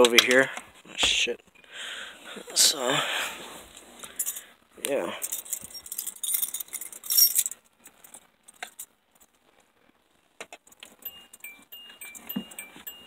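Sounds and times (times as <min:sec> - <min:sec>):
car keys jangling: 0:05.2 - 0:08.9, 0:10.8 - 0:13.0
car warning chime beeping: 0:11.0 - 0:13.0.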